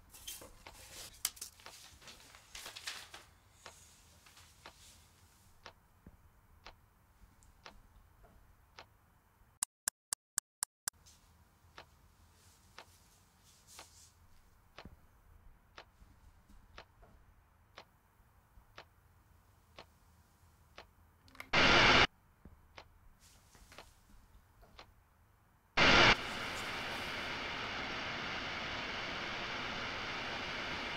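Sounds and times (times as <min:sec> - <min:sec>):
wall clock ticking: 0:05.6 - 0:06.8, 0:14.6 - 0:19.0, 0:22.6 - 0:23.0, 0:24.6 - 0:25.0
loud burst of noise: 0:21.5 - 0:22.1, 0:25.8 - 0:30.9.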